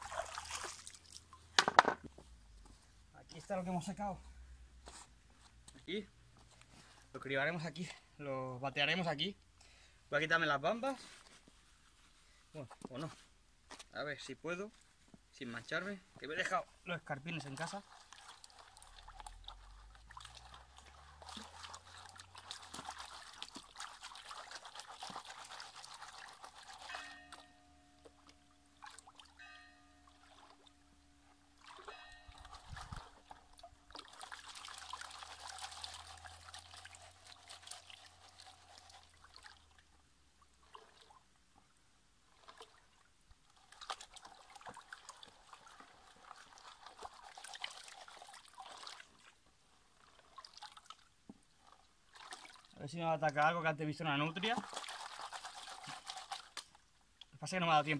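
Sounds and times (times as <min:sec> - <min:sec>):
water sloshing in plastic pan: 0:00.0 - 0:02.1, 0:17.0 - 0:29.4, 0:31.6 - 0:39.8, 0:40.4 - 0:41.2, 0:42.3 - 0:53.5, 0:54.2 - 0:57.4.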